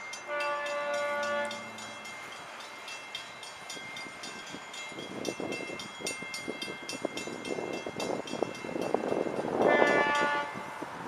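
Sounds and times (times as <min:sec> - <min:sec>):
train clatter: 0:00.0 - 0:10.8
crossing bell ringing: 0:00.0 - 0:10.9
locomotive air horn: 0:00.3 - 0:01.8, 0:09.6 - 0:10.8.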